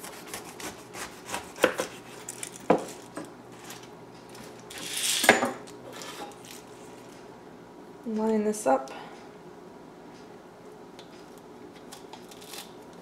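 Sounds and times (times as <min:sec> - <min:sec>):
knife crunching through pineapple: 0:00.0 - 0:02.4, 0:11.8 - 0:13.0.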